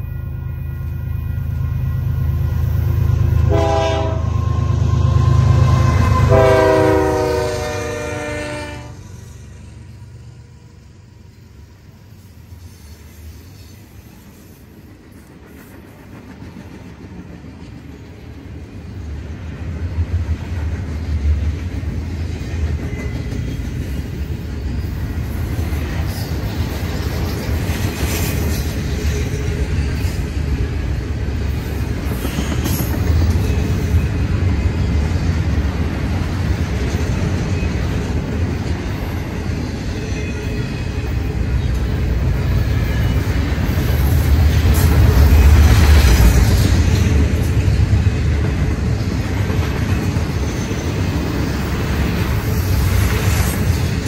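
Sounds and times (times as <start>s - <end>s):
freight train wheels rumbling: 0.0s - 54.0s
high-pitched squeals: 4.2s - 7.6s.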